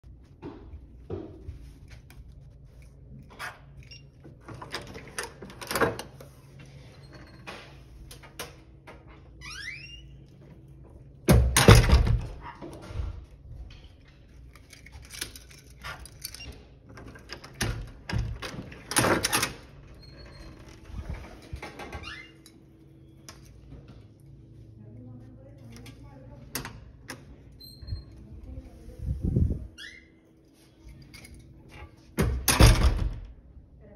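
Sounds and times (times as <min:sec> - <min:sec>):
door lock clicks and rattles: 0:11.3 - 0:12.4, 0:14.6 - 0:19.7, 0:32.2 - 0:33.3.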